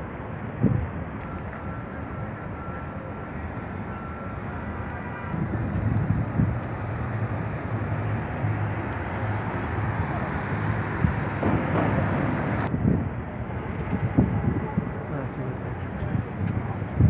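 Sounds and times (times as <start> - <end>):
passing cars hum: 0.0 - 17.0.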